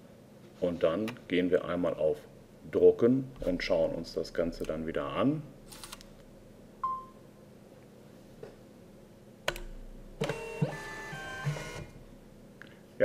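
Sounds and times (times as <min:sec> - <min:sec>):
label printer click: 0:09.5 - 0:11.9
label printer motor whine: 0:10.2 - 0:12.1.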